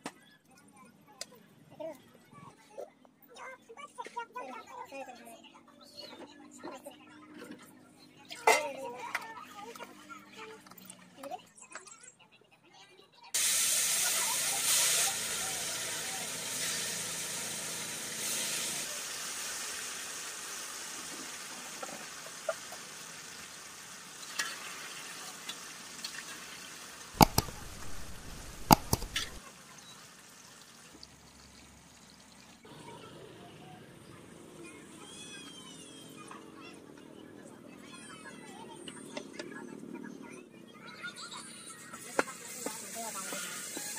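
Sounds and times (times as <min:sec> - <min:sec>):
fish frying in hot oil: 0:13.4 - 0:32.6, 0:42.0 - 0:43.9.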